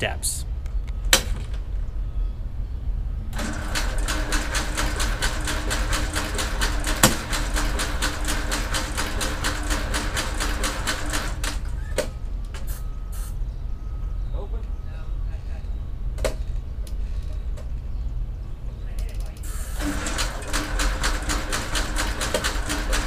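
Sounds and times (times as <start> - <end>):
aircraft engine cranking: 3.3 - 12.9, 19.4 - 23.0
starter whine: 3.3 - 12.9, 19.8 - 23.0.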